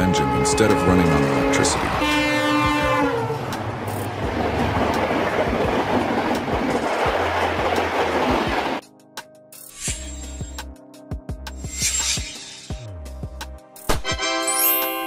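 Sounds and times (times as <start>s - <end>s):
locomotive horn: 0.0s - 3.6s
train rumbling by: 0.0s - 8.8s.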